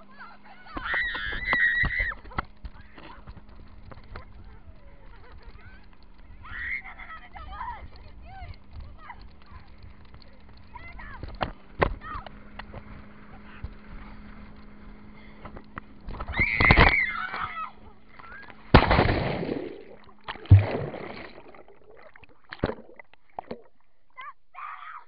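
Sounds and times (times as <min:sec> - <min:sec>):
heavy splashes: 0:18.6 - 0:23.8
water splashing and rushing: 0:18.6 - 0:23.8
underwater bubbling: 0:18.8 - 0:24.2.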